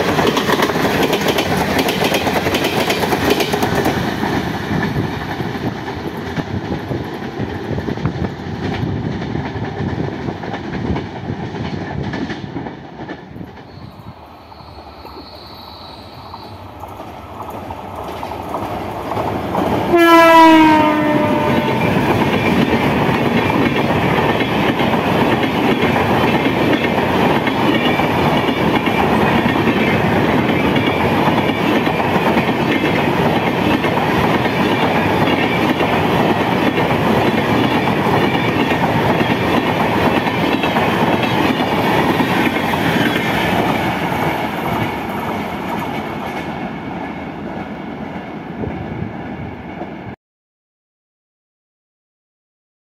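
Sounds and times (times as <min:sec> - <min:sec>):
train coaches running over rails: 0:00.0 - 0:50.1
train horn blast: 0:19.9 - 0:22.2.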